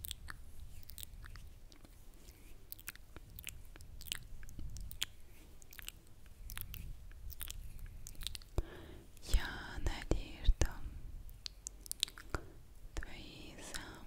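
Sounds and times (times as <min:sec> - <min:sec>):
faint low rumble: 0:00.0 - 0:14.0
lip smacks and tongue clicks: 0:00.0 - 0:14.0.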